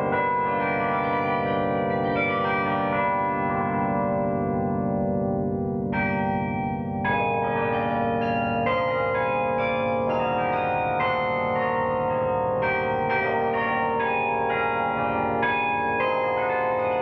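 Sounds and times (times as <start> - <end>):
carillon bells playing melody: 6.0 - 17.0.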